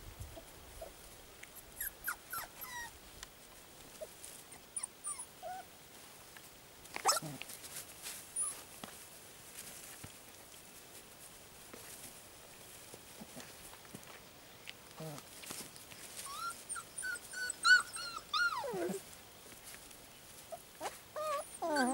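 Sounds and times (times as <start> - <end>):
puppies whimpering and yipping: 1.8 - 3.0, 4.0 - 5.7, 7.0 - 7.4, 16.1 - 19.0, 20.5 - 21.9.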